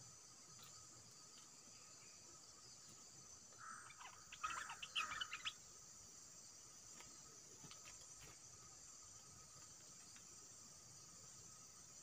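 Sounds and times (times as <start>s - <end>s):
high drone of insects: 0.0s - 12.0s
bird chattering calls: 3.6s - 5.6s.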